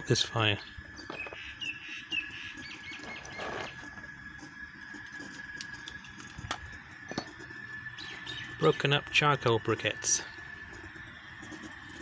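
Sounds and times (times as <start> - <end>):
thin high whine: 0.0 - 12.0
faint bird chirps: 0.4 - 3.9
charcoal scraping: 1.0 - 12.0.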